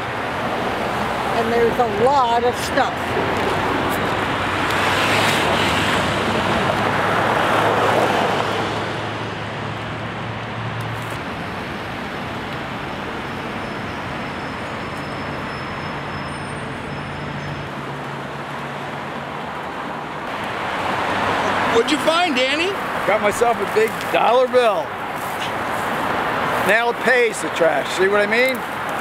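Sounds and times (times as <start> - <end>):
vehicle passing close: 0.0 - 14.8
road traffic noise: 0.0 - 29.0.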